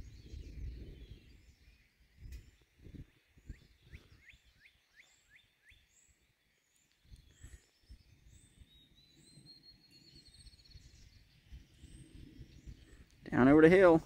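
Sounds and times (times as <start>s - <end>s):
low rumbling on microphone: 0.0s - 4.1s
faint birdsong: 0.0s - 14.0s.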